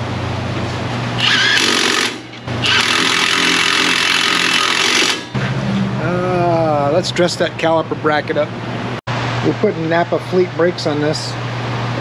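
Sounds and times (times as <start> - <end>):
impact wrench hammering: 1.2 - 5.4.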